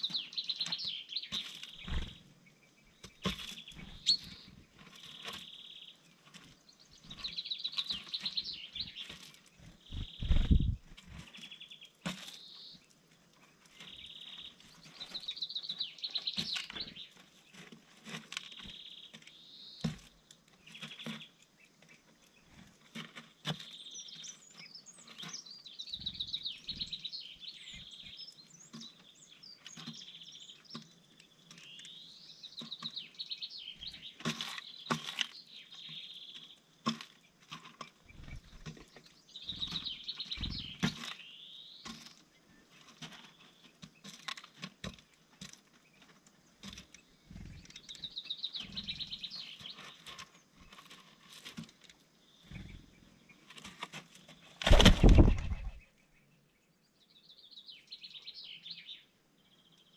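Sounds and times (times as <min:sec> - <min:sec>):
songbirds singing and calling: 0:00.0 - 0:59.9.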